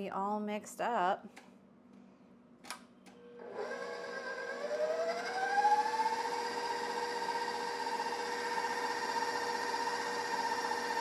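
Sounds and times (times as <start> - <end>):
stand mixer motor whining: 3.4 - 11.0.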